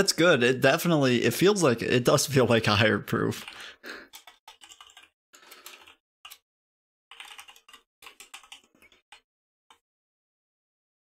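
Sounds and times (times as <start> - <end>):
keyboard typing: 3.4 - 6.4, 7.1 - 9.8.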